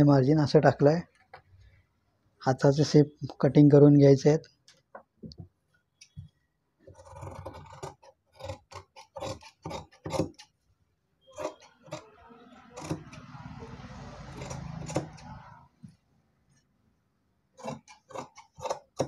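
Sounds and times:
blades rasping through cloth: 0:11.3 - 0:15.7, 0:17.6 - 0:19.0.

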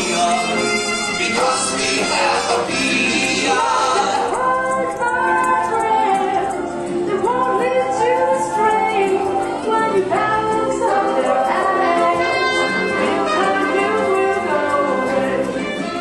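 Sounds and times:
voices singing with instruments: 0:00.0 - 0:16.0.

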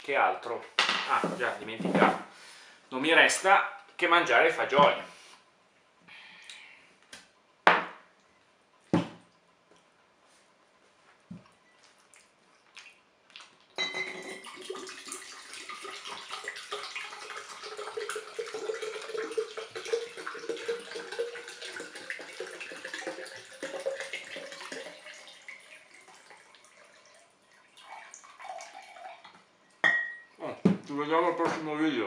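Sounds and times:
liquid pouring into glass: 0:13.8 - 0:30.3.

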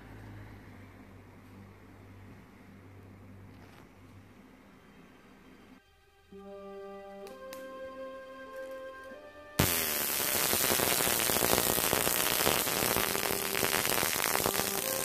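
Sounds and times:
background music: 0:04.3 - 0:15.0
flamethrower gas hissing: 0:09.6 - 0:15.0.

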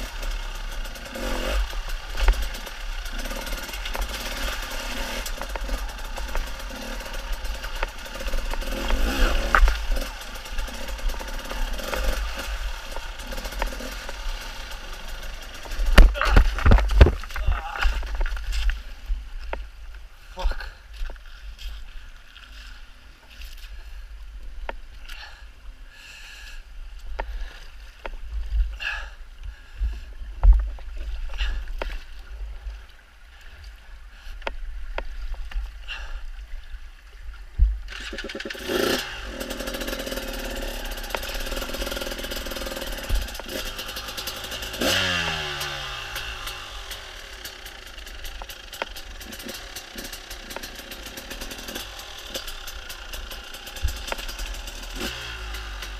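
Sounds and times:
motorcycle engine revving: 0:00.0 - 0:18.7, 0:37.9 - 0:55.9
motorcycle knocks and thumps: 0:01.0 - 0:18.8, 0:39.6 - 0:45.7, 0:47.9 - 0:55.6.

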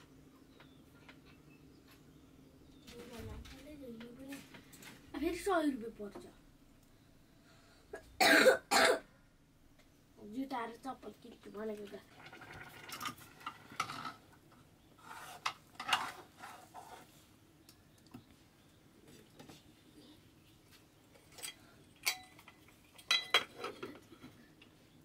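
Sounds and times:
utensils scraping metal pot: 0:12.1 - 0:14.3, 0:15.0 - 0:17.2.

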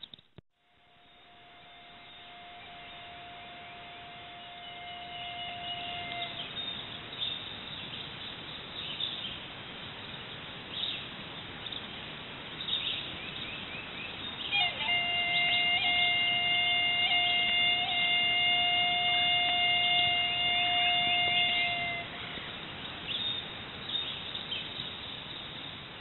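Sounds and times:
steady outdoor hiss: 0:00.0 - 0:26.0
bird chirps: 0:04.5 - 0:09.4, 0:12.6 - 0:16.3, 0:21.5 - 0:25.8.

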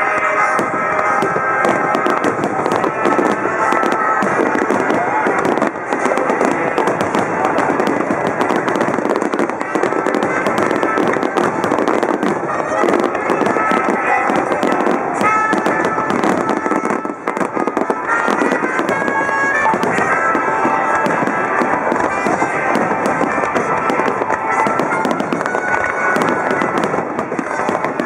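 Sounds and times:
fireworks bursting and crackling: 0:00.0 - 0:28.0.

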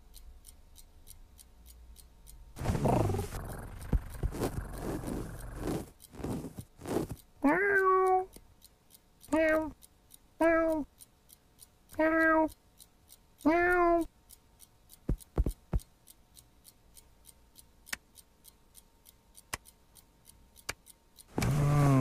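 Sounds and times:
clock ticking: 0:00.0 - 0:22.0
soft low thumps: 0:02.6 - 0:07.2, 0:15.0 - 0:15.8
cartoon cat meowing: 0:07.4 - 0:08.3, 0:09.3 - 0:09.7, 0:12.0 - 0:12.5, 0:13.5 - 0:14.1.

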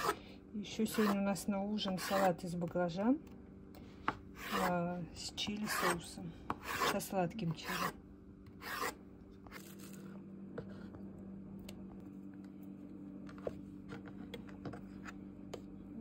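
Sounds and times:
steady low hum: 0:00.0 - 0:16.0
blade scraping zucchini: 0:00.8 - 0:02.4, 0:04.4 - 0:04.8, 0:05.6 - 0:08.0, 0:08.6 - 0:10.0.

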